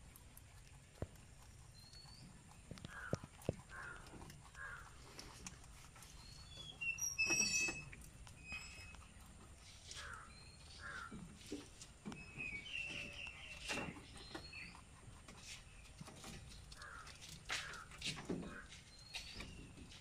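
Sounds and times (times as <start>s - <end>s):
rabbit chewing leaves: 0.0s - 20.0s
birds calling and chirping: 1.0s - 20.0s.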